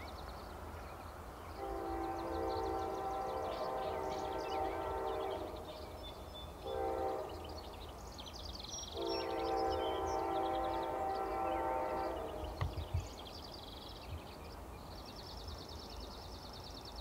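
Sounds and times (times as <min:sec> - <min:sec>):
locomotive air horn: 0:01.6 - 0:05.8, 0:06.6 - 0:07.6, 0:09.0 - 0:12.6.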